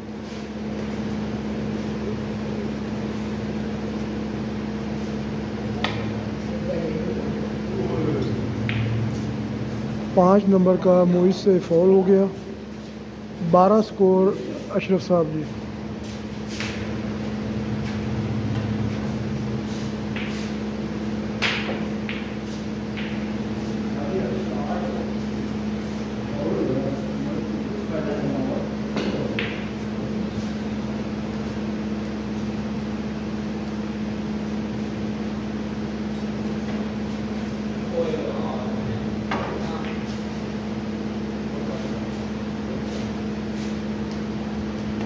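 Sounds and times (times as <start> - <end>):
machinery hum: 0.0 - 45.0
snooker cue striking ball: 20.0 - 23.6, 28.9 - 30.0, 39.2 - 40.3.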